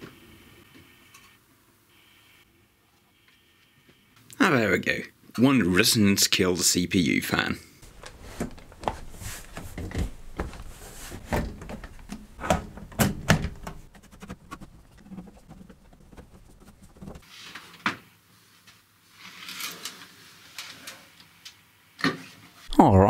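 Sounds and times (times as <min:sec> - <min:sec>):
computer case panel knocking: 0:09.6 - 0:13.9.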